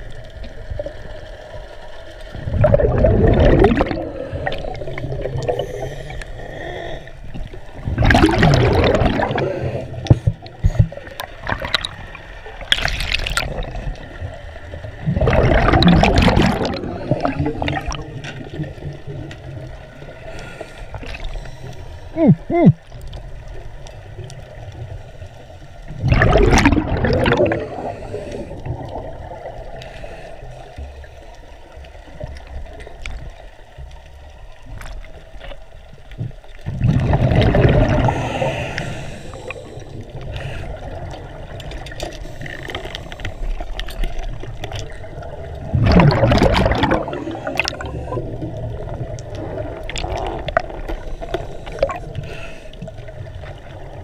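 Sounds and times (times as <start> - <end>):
exhaled bubbles rushing: 2.3 - 6.2, 7.3 - 20.1, 25.9 - 29.8, 36.5 - 52.2.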